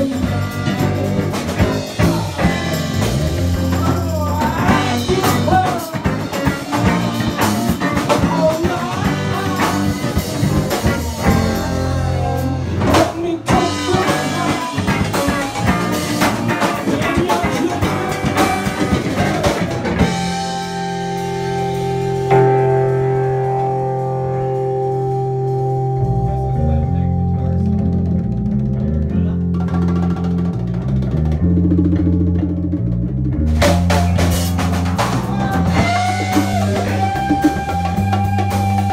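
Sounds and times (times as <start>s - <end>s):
congas: 0.0s - 20.4s, 27.9s - 38.9s
drum kit: 0.0s - 38.9s
electric guitars: 0.0s - 38.9s.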